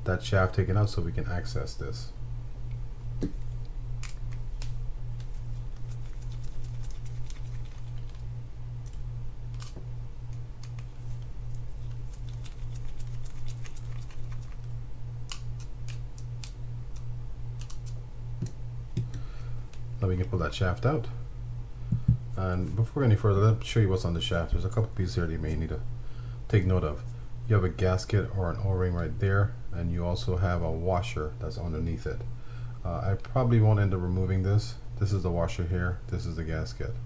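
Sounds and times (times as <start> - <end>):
pulsing low hum: 1.5 - 24.6.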